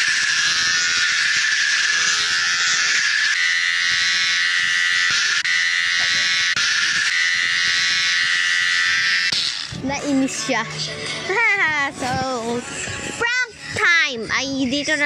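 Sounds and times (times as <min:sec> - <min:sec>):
electric razor buzz: 0:00.0 - 0:10.7.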